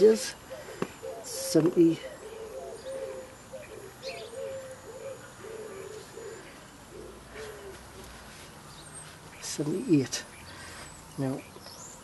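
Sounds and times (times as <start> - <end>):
bird cooing: 0.0 - 8.1.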